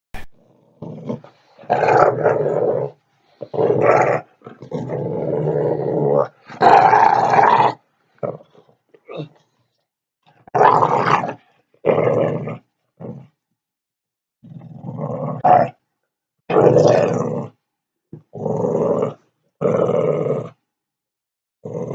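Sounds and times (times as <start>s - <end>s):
dog growling in play: 0.3s - 9.4s, 10.5s - 13.4s, 14.4s - 15.8s, 16.5s - 17.6s, 18.2s - 20.6s, 21.6s - 21.9s.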